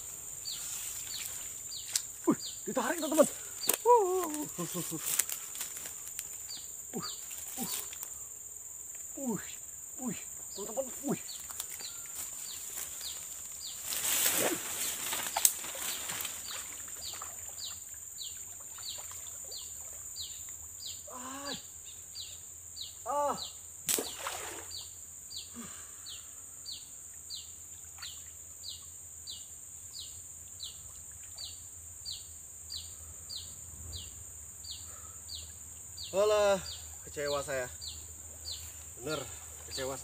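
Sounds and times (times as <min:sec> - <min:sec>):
short calls: 0:00.0 - 0:08.3, 0:09.1 - 0:17.8
high insect buzz: 0:00.0 - 0:40.0
water splashing from wading: 0:23.9 - 0:24.8.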